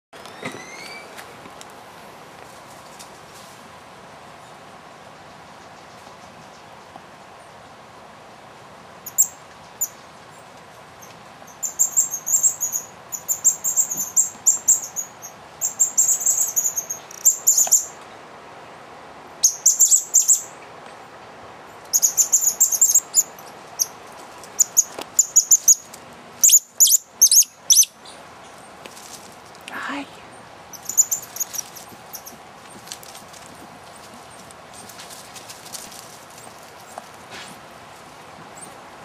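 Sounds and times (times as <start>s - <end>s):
coati high-pitched chirps: 24.6s - 28.1s, 30.7s - 32.4s.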